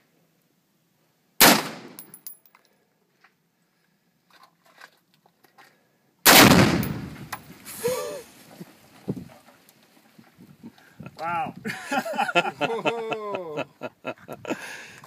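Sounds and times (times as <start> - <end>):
gunshot: 1.4 - 2.0, 6.3 - 7.3
exploding target blast: 6.3 - 7.3.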